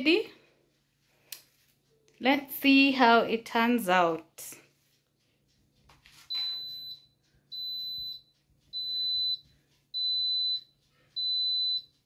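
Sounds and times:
pressure cooker high beeps: 0:06.3 - 0:09.4, 0:10.0 - 0:12.0.

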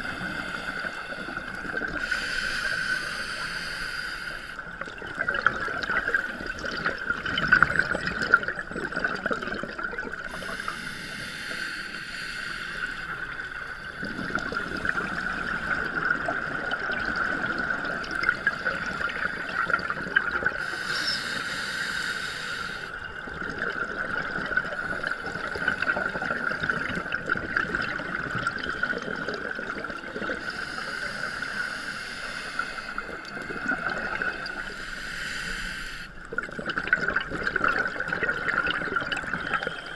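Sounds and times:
regulator bubbles gurgling underwater: 0:00.0 - 0:35.1, 0:36.2 - 0:39.9.

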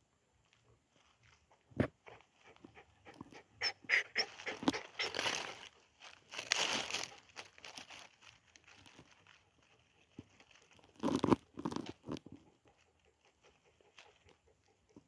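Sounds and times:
dog crackling in dry leaves: 0:04.0 - 0:12.0.

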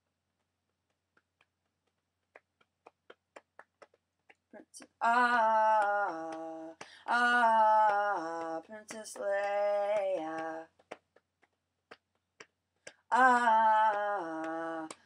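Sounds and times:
loud held vocal line: 0:05.0 - 0:10.6, 0:13.1 - 0:15.0.

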